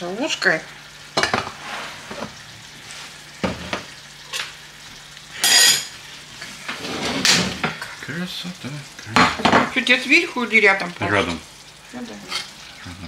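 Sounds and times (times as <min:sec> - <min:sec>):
metal spoon scraping in a pan: 0:05.4 - 0:07.4, 0:12.2 - 0:12.6.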